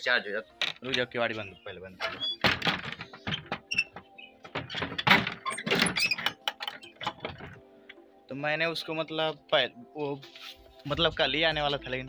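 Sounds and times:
wooden door knocking and rattling: 2.0s - 7.6s.

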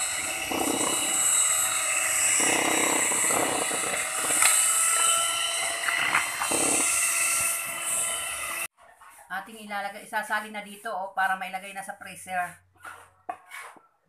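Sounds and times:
electric hand mixer whipping: 0.0s - 8.7s.

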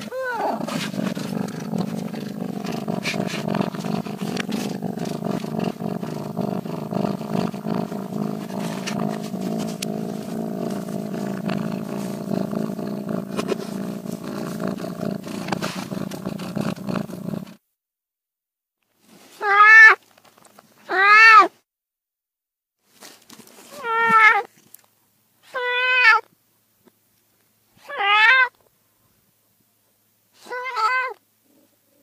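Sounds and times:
cat growling low: 0.0s - 17.6s.

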